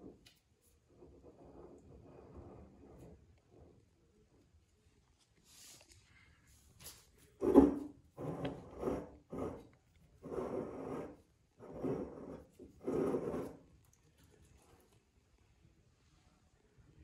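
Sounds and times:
rough rubbing handling noise: 6.8s - 13.7s.

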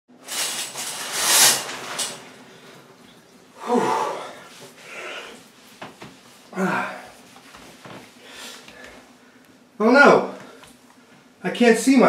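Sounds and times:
person breathing out: 3.6s - 5.4s
person sighing: 3.6s - 5.4s, 6.5s - 7.2s.

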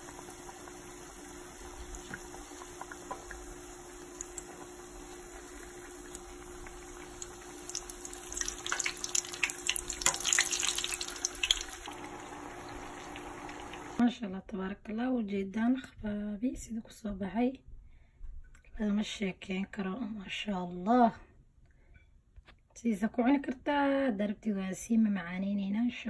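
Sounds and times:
doughnuts sizzling in hot oil: 0.0s - 14.0s.

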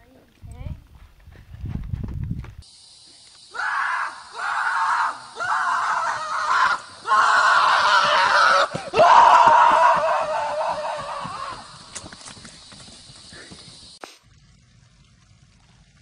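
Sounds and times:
horse crying out: 3.6s - 12.0s.

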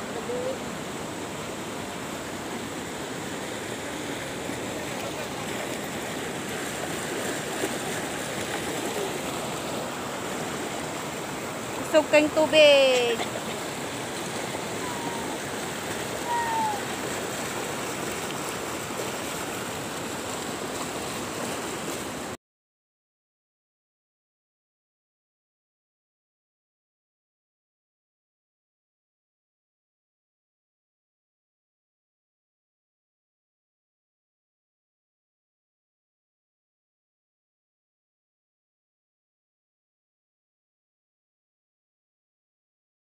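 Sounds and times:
river water rushing: 0.0s - 22.4s.

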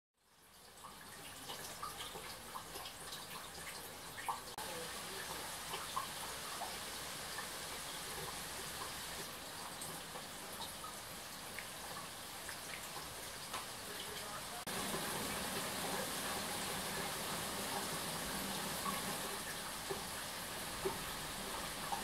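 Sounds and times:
rain falling steadily: 0.2s - 22.0s.

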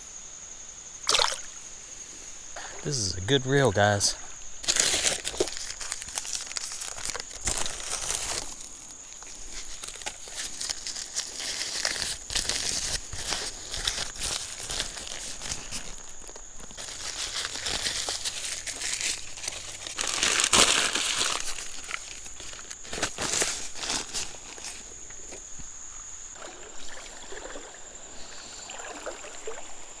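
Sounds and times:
foil and paper crinkling: 3.9s - 24.9s.

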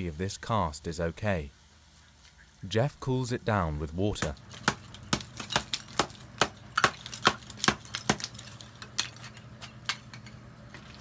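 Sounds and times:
hammer and chisel strikes: 4.2s - 8.4s.

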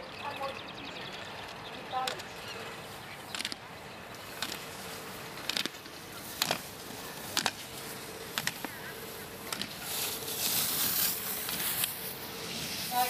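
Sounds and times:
rushing hiss: 6.0s - 13.0s.

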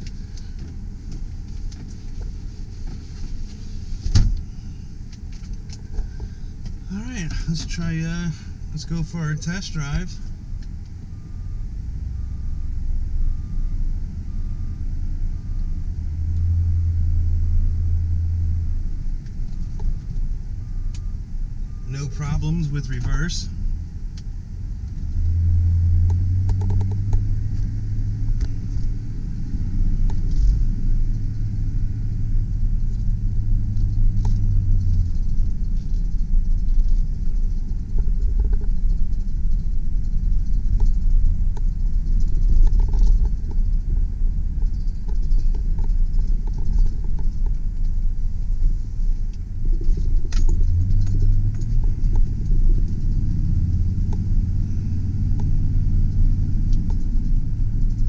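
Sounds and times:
road rumble: 0.0s - 58.0s
truck engine drone: 0.0s - 58.0s
light clicks and rattles: 33.8s - 43.8s, 44.6s - 48.7s.

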